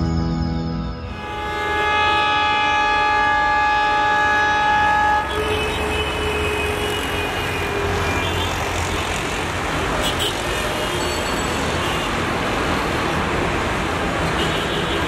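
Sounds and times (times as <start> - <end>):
locomotive horn blast: 1.0 - 8.6.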